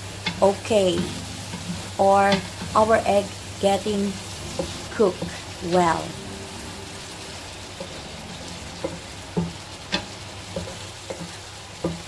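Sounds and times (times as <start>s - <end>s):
eggs sizzling in frying pan: 0.0s - 12.0s
spatula scraping a pan: 0.1s - 3.2s, 6.9s - 12.0s.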